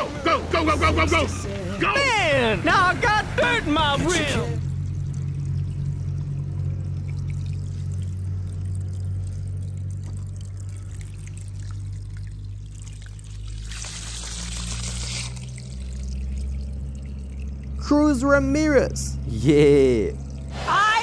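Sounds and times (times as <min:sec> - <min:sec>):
low hum: 0:00.0 - 0:21.0
water trickling and pouring: 0:04.6 - 0:20.6
rush of water: 0:04.9 - 0:17.9.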